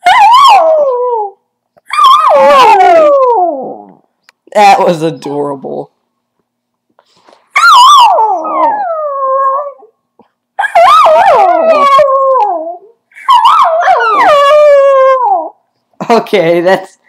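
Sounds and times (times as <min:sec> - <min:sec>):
dog howling: 0:00.0 - 0:04.0, 0:07.6 - 0:09.9, 0:10.6 - 0:15.6.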